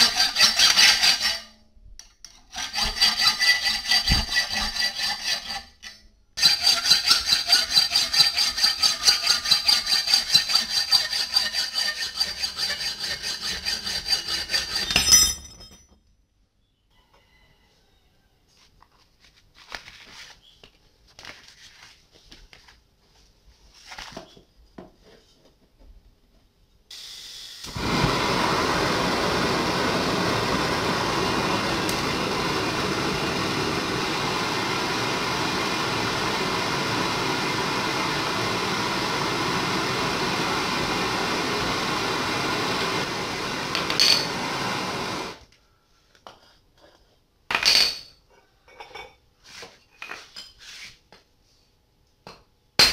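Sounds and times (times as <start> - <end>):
metal clinks and knocks: 14.9 - 16.1
gas torch hissing: 26.9 - 45.4.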